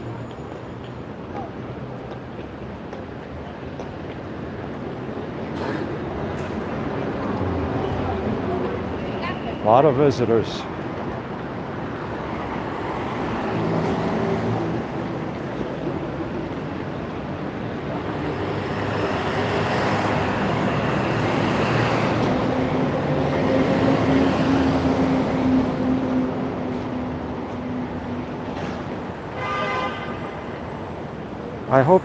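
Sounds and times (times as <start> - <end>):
rumble of cars and buses: 0.0 - 32.0.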